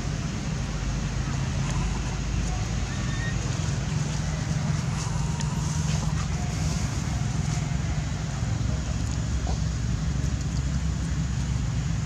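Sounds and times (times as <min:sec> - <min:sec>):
low rumble with hiss: 0:00.0 - 0:12.0.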